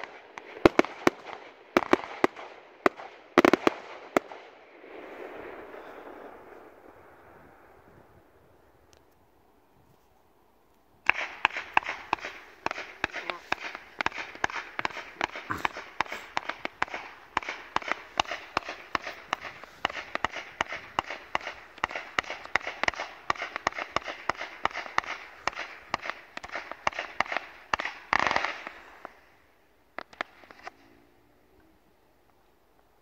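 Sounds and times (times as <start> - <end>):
firework cracks and pops: 0.0 - 7.0, 11.0 - 29.3, 29.9 - 30.8
firework rushing burst: 11.1 - 29.0.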